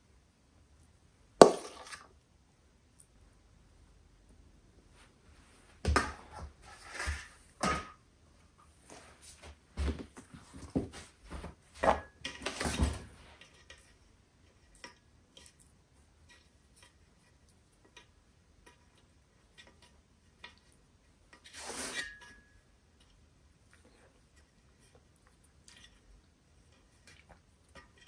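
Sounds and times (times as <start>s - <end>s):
dishes knocking and clattering: 11.8s - 13.1s.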